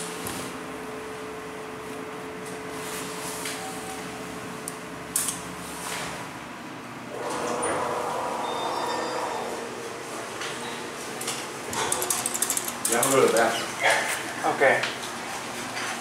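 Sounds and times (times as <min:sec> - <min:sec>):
elevator hum: 0:00.0 - 0:14.4
sliding doors closing: 0:07.1 - 0:12.0.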